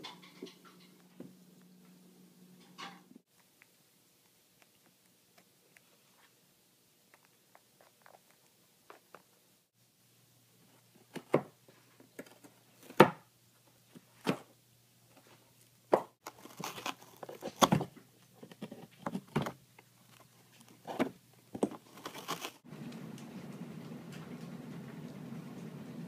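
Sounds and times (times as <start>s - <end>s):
cat tearing cardboard: 16.2s - 19.4s, 20.7s - 22.6s.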